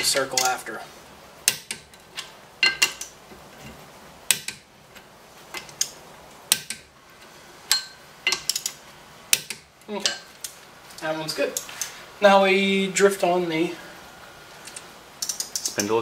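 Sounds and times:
torque wrench clicking: 7.7s - 10.6s, 14.6s - 16.0s.

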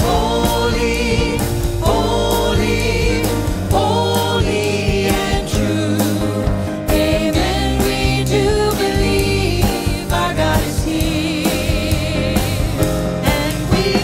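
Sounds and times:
bass guitar: 0.0s - 14.0s
choir singing a hymn: 0.0s - 14.0s
drums: 0.0s - 14.0s
piano: 0.0s - 14.0s.

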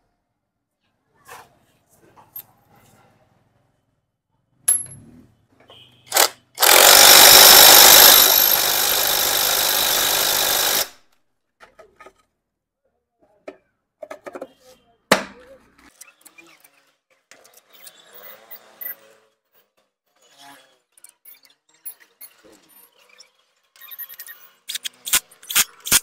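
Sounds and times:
impact wrench hammering: 6.1s - 10.9s.

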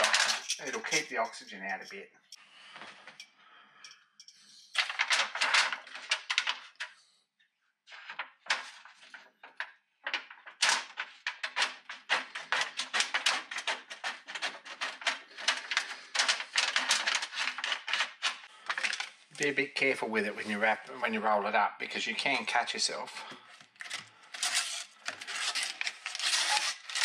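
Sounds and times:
metal foil crackling: 23.8s - 27.0s.

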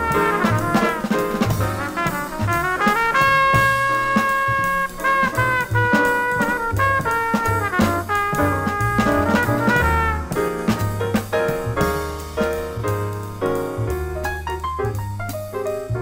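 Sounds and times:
trumpet: 0.0s - 12.9s
double bass: 0.0s - 16.0s
drum kit cymbals: 0.0s - 16.0s
piano: 0.0s - 16.0s
saxophone: 2.5s - 10.3s.

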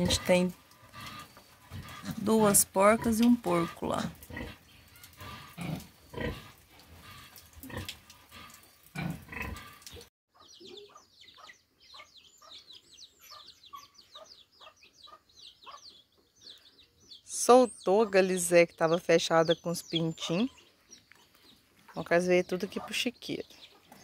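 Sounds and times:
pigs grunting: 0.0s - 9.9s
chicks peeping: 10.4s - 17.3s.

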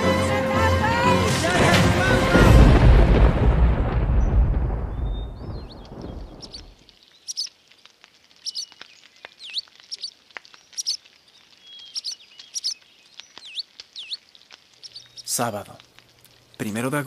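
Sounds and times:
small bird chirping: 4.9s - 16.5s
faint clicks: 6.5s - 16.6s.

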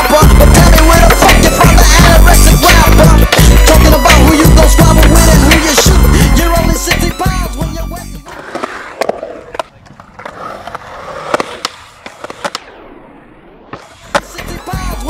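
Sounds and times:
skateboard clacks: 0.0s - 6.0s, 8.2s - 12.8s, 13.7s - 15.0s
hip hop music: 0.0s - 8.4s, 14.0s - 15.0s
skateboard wheels rolling on concrete: 0.0s - 15.0s.

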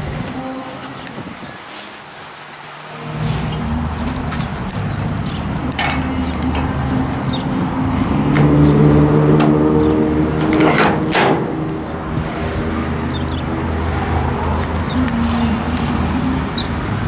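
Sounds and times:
vehicle engine running: 2.9s - 17.0s
metal latch lever clacking: 5.7s - 6.1s, 10.4s - 11.5s
latch clunking shut: 5.7s - 6.2s, 10.4s - 11.6s.

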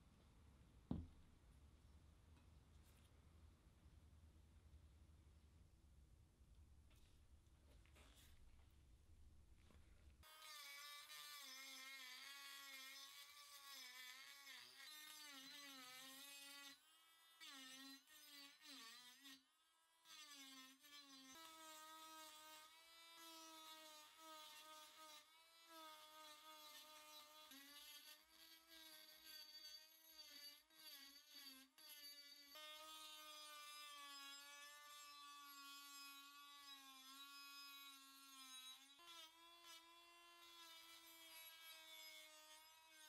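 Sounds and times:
rotary tool grinding metal: 10.2s - 43.0s.

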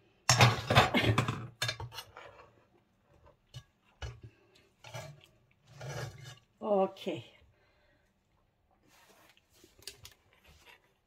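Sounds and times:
cutlery scraping a roasting pan: 0.3s - 2.6s, 3.5s - 6.5s.

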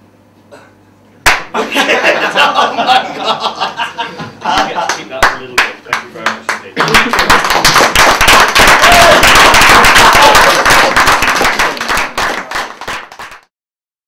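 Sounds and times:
audience applauding: 4.5s - 13.5s.

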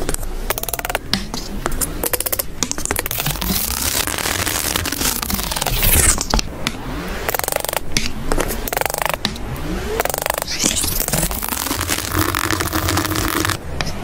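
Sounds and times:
palette knife scraping thick paint: 3.0s - 6.3s, 10.1s - 14.0s.

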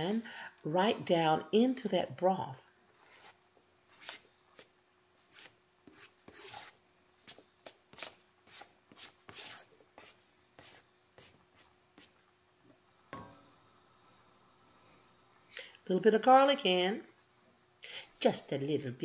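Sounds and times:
knife scraping a plastic cutting board: 2.9s - 4.7s, 5.3s - 12.1s.

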